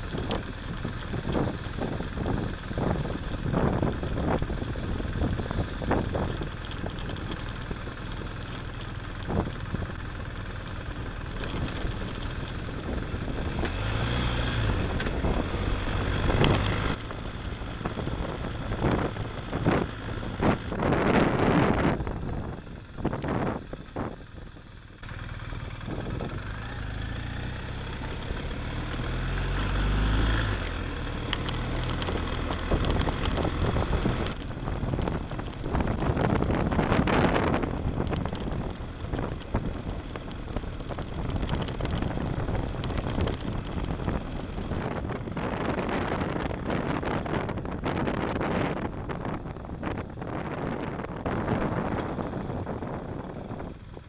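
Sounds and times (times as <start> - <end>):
motorcycle engine accelerating: 0.0 - 54.0
wind on microphone: 17.8 - 24.6, 31.8 - 54.0.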